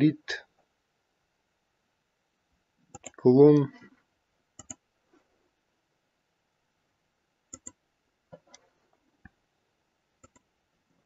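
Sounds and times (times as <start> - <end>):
computer mouse clicks: 2.9 - 3.2, 4.6 - 4.8, 7.5 - 7.8, 10.2 - 10.5.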